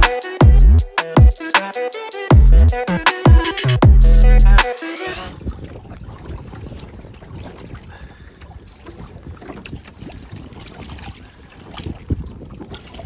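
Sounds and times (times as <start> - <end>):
water sloshing and lapping: 5.3 - 13.0
wind rumbling on microphone: 5.3 - 13.0.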